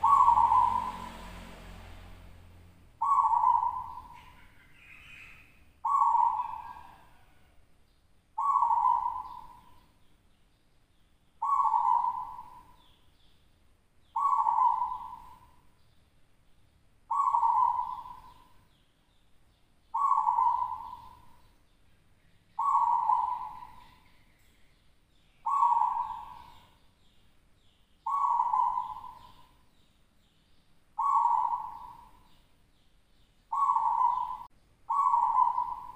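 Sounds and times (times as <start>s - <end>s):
dove cooing: 0.0s - 1.3s, 3.0s - 7.6s, 8.4s - 9.9s, 11.4s - 12.9s, 14.2s - 15.6s, 17.1s - 18.6s, 19.9s - 21.5s, 22.6s - 24.1s, 25.4s - 26.8s, 28.0s - 29.6s, 31.0s - 32.4s, 33.5s - 35.9s.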